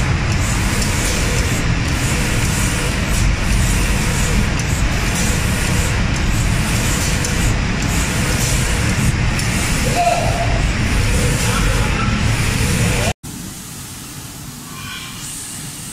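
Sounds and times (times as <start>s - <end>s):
spray-painting machine rushing air: 0.0s - 15.9s.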